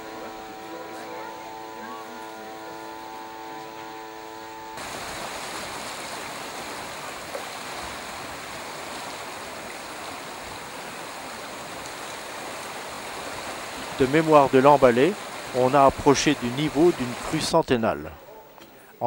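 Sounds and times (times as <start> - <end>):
held chord of steady tones: 0.0 - 6.4
floodwater rushing: 0.0 - 17.6.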